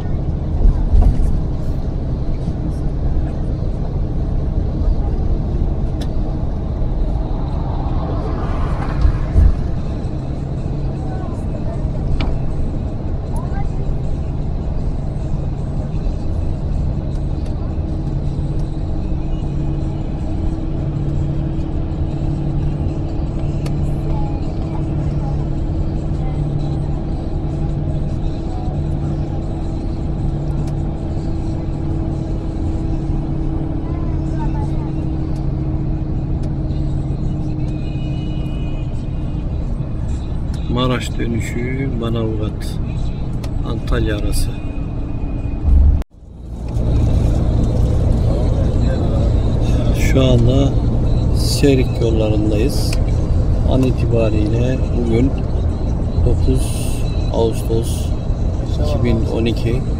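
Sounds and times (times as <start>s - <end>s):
constant low hum: 0.0s - 40.9s, 42.6s - 59.9s
bus engine and road rumble: 0.0s - 59.9s
low thumps: 7.0s - 10.2s, 45.6s - 46.1s.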